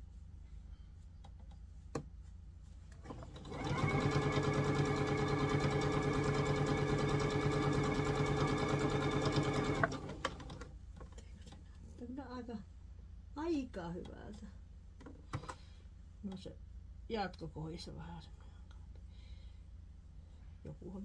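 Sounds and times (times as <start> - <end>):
sewing machine stitching: 3.0 - 10.7.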